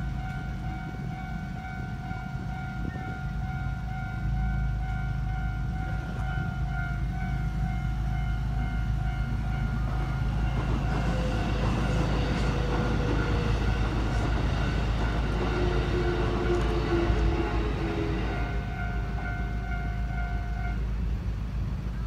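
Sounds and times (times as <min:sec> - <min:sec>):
high-pitched hum: 0:00.0 - 0:20.9
electric train rumbling on rails: 0:00.0 - 0:22.0.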